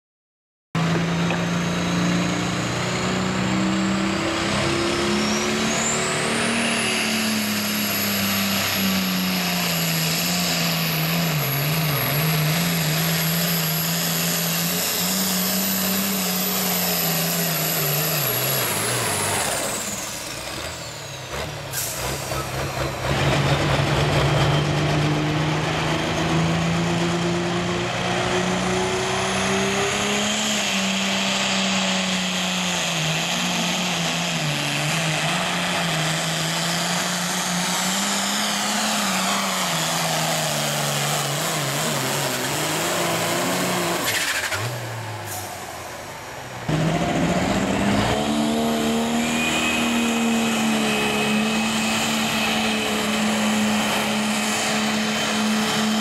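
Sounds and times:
diesel tractor engine at full power: 0.8 - 56.0
high turbo whistle: 47.8 - 56.0.

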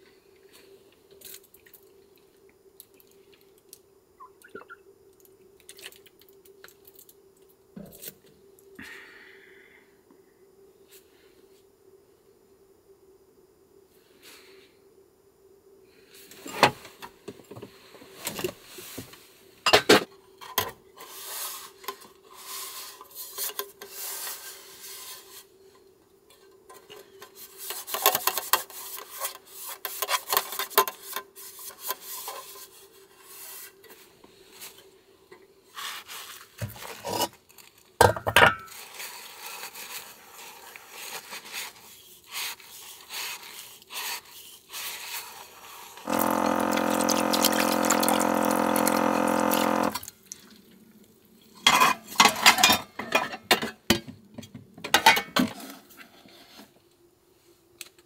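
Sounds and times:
faint steady hum: 0.0 - 27.7, 44.7 - 51.6.

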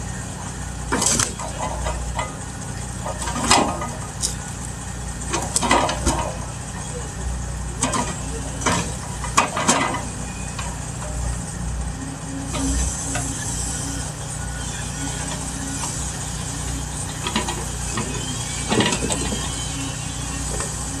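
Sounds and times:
log loader engine running: 0.0 - 21.0.

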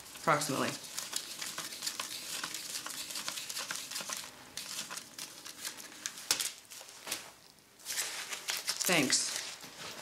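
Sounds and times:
banknotes rustling: 0.0 - 10.0.

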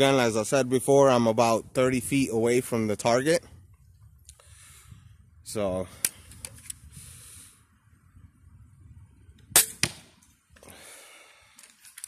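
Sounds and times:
crossbow firing snap and crack: 9.5 - 10.2.

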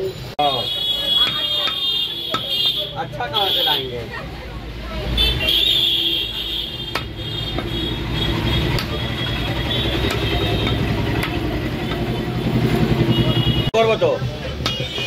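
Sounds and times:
cleaver chopping on wood: 1.2 - 2.8, 6.8 - 7.8, 8.6 - 12.1.

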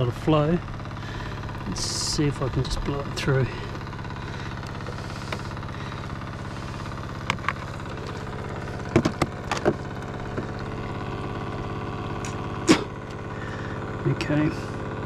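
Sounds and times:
small water pump humming: 0.0 - 15.0
handling knocks and clicks: 7.2 - 10.7.

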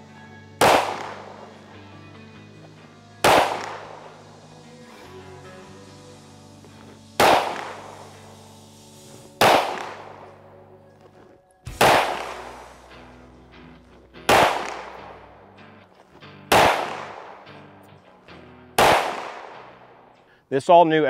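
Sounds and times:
pistol shots echoing: 0.6 - 1.7, 3.2 - 4.4, 7.2 - 8.1, 9.4 - 10.5, 11.7 - 13.0, 14.3 - 15.3, 16.5 - 17.6, 18.8 - 20.0.

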